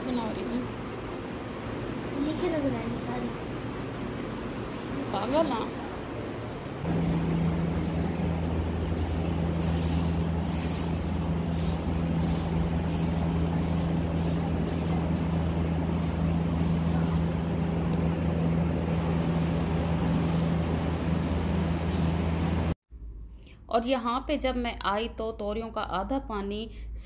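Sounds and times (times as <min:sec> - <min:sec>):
loud low machine hum: 0:00.0 - 0:22.8
broom sweeping a hard floor: 0:08.7 - 0:18.0, 0:18.9 - 0:22.8.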